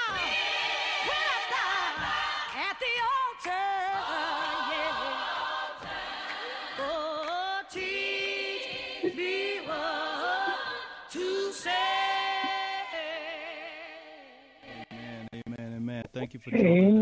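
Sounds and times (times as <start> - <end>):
person singing gospel: 0.0 - 15.5.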